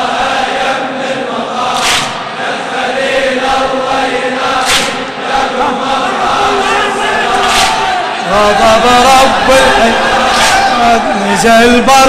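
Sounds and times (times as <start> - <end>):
crowd of men chanting: 0.0 - 12.0
hands slapping chests: 1.8 - 2.2, 4.6 - 5.0, 7.4 - 7.9.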